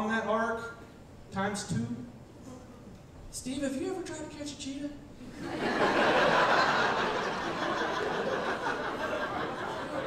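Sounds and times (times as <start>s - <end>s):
audience laughing: 5.3s - 10.0s.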